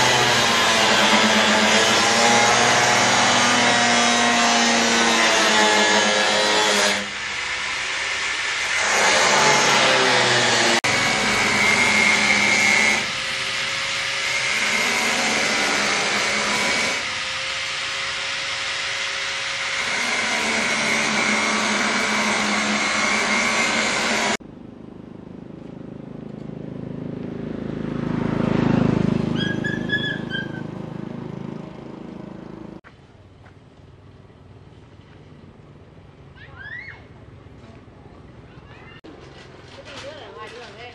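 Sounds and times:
motorbike passing: 24.5s - 32.8s.

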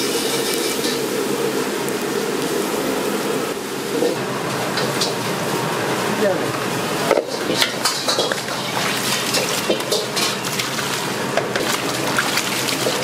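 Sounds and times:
utensils clattering: 7.1s - 13.0s.

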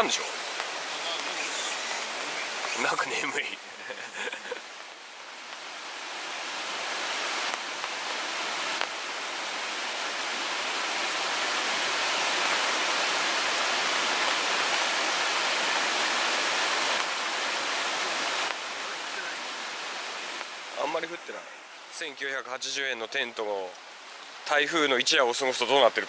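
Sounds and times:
river rushing over rapids: 0.0s - 26.0s.

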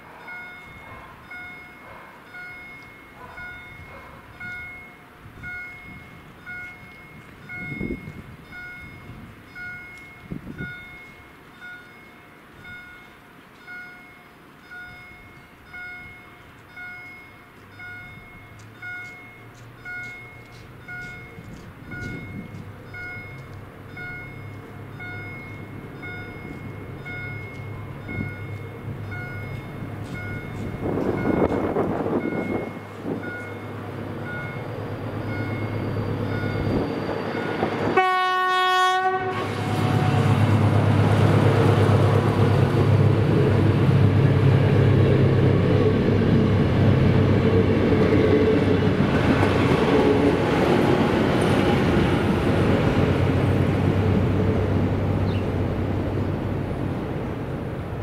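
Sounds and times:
train engine hum: 0.0s - 58.0s
level crossing warning tone: 0.3s - 38.9s.

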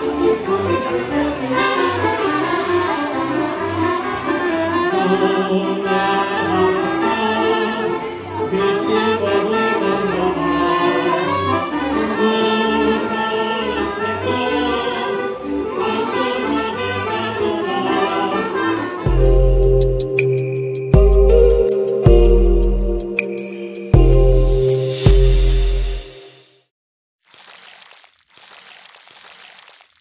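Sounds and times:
accordion: 0.0s - 25.6s
saxophone and trumpet melody: 0.0s - 26.0s
bass beat: 19.1s - 26.1s.

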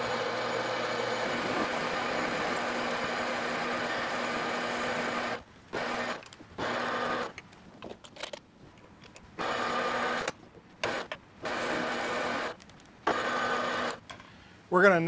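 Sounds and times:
lathe whirring with low hum: 0.0s - 7.3s, 9.4s - 14.0s.

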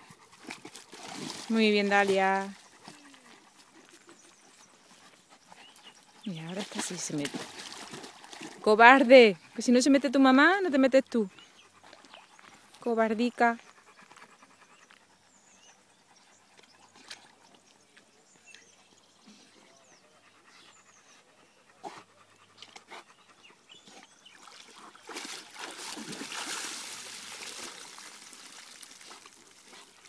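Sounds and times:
dog panting: 0.0s - 1.2s, 1.9s - 6.9s, 11.3s - 12.8s, 13.4s - 17.5s, 19.3s - 25.3s
dogs splashing through water: 0.0s - 9.8s, 11.8s - 12.9s, 23.7s - 30.0s.

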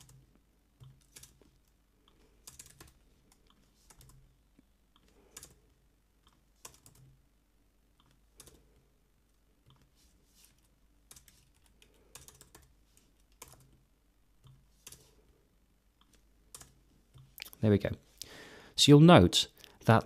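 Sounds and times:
typing on keyboard: 0.0s - 0.2s, 0.8s - 4.3s, 5.0s - 5.6s, 6.3s - 7.2s, 8.0s - 8.6s, 11.1s - 13.8s, 14.4s - 15.1s, 16.0s - 16.8s.

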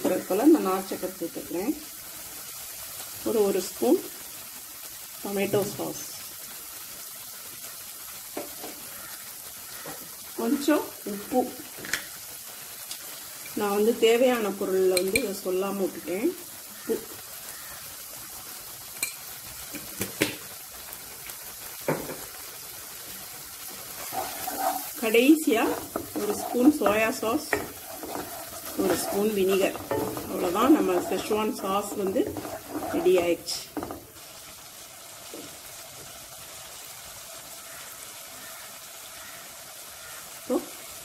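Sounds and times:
sauce sizzling in oil: 0.0s - 41.0s.

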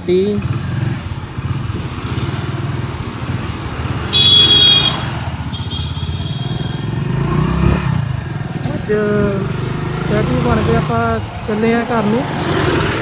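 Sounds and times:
motorcycle engine running: 0.1s - 13.0s
vehicle horn beep: 4.1s - 6.8s.

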